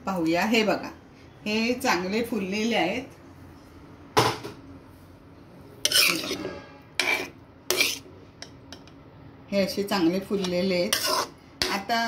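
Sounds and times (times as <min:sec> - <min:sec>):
metal spoon scraping metal pot: 0:05.8 - 0:08.1, 0:10.4 - 0:11.9.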